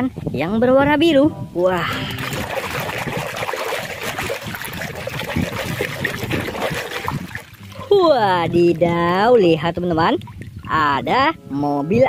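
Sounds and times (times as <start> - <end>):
water sloshing and squelching: 2.0 - 10.9.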